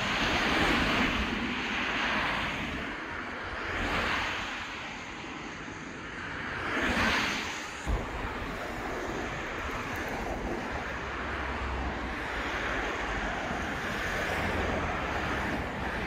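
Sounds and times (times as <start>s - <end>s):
vehicles passing on road: 0.0s - 16.0s.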